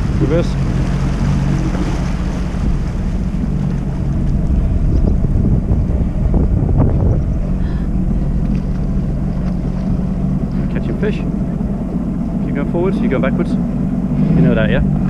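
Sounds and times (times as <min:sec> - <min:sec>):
jet ski engine humming: 0:00.0 - 0:15.0
water splashing: 0:00.0 - 0:15.0
wind buffeting microphone: 0:00.0 - 0:15.0.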